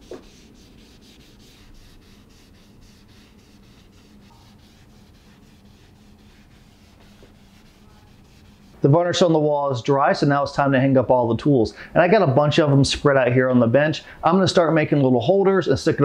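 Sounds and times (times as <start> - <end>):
gloved hand rubbing wood: 0.0 - 9.3
low steady hum: 0.0 - 16.0.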